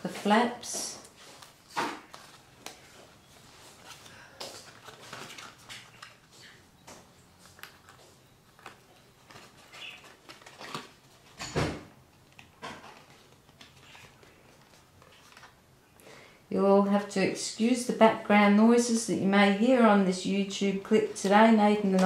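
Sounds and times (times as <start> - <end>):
card being folded by hand: 1.0 - 6.6, 7.2 - 11.4, 12.1 - 15.6.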